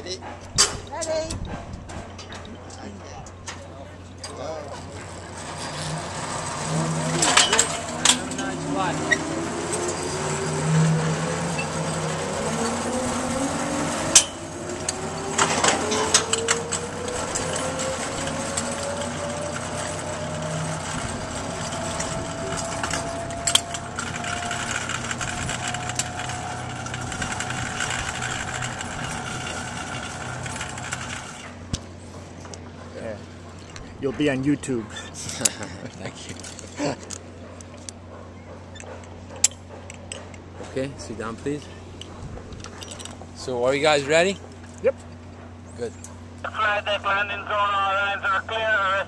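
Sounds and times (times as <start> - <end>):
zipline pulleys whining on cables: 4.3 - 31.8.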